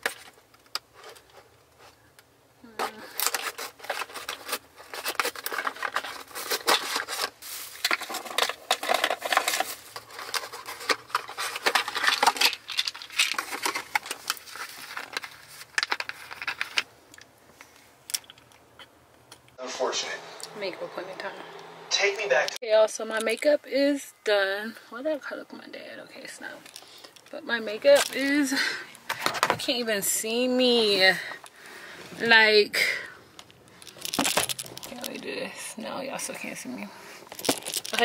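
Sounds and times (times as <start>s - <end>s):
cardboard packaging crinkling: 3.0s - 16.9s, 33.8s - 35.5s, 37.2s - 38.0s.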